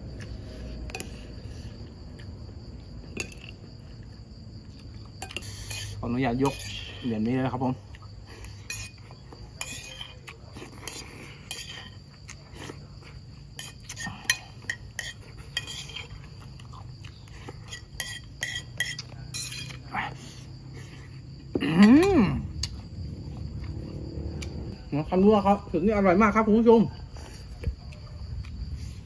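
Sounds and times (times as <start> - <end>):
insects chirping: 0.0 - 29.0
spoon scraping a plate: 5.2 - 7.2, 8.4 - 12.2, 13.4 - 16.8, 17.4 - 19.9.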